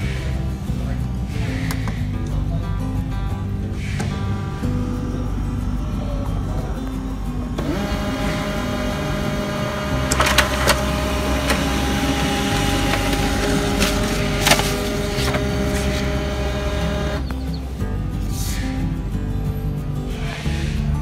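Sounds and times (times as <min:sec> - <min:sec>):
printer motor and gear hum: 0:07.6 - 0:17.3
paper mechanism clicks: 0:07.7 - 0:17.2.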